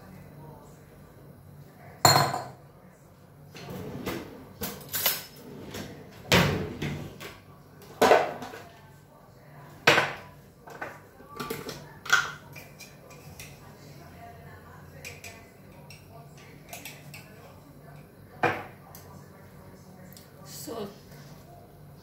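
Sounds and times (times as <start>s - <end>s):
dishes and pots clinking: 2.0s - 2.6s.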